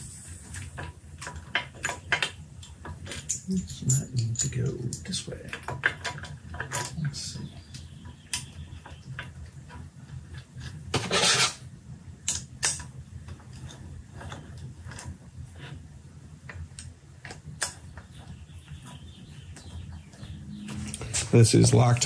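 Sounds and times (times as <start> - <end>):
faint low hum: 2.6 - 9.4
metal scraping rub: 10.6 - 11.7.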